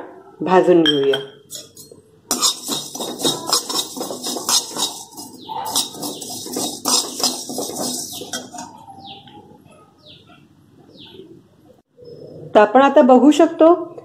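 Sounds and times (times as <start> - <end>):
metal spatula scraping seeds in pan: 1.5 - 8.8
bird chirping: 4.4 - 11.4.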